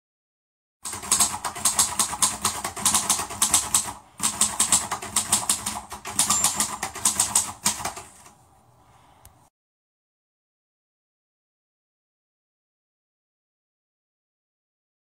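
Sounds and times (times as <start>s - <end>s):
rapid even clicking: 0.8s - 8.4s.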